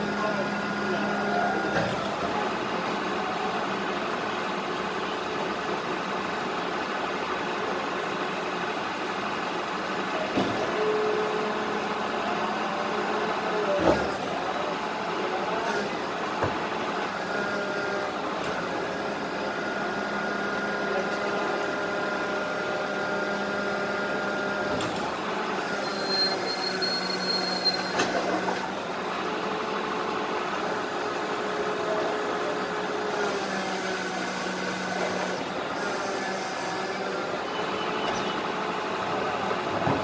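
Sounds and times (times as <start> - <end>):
garbage truck engine drone: 0.0 - 40.0
bin and rubbish knocks and clatter: 39.8 - 40.0.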